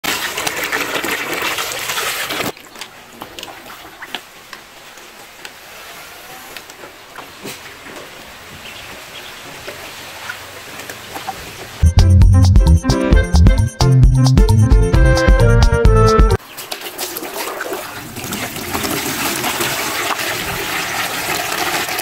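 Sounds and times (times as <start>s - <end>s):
water gushing from a hose: 0.0s - 2.6s, 16.6s - 22.0s
water splashes: 0.0s - 5.4s, 16.4s - 22.0s
ducklings paddling: 6.6s - 11.8s.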